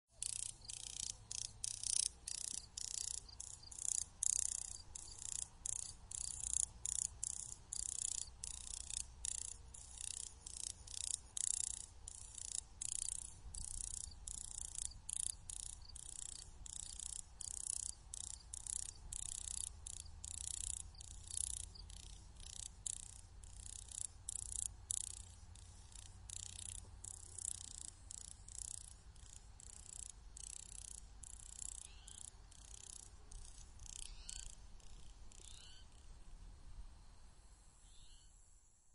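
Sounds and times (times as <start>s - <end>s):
grasshopper wing clicks: 0.2s - 35.5s.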